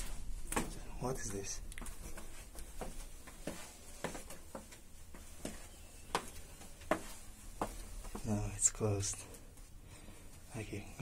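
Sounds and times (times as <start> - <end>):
footsteps scuffing on stone: 0.0 - 8.4.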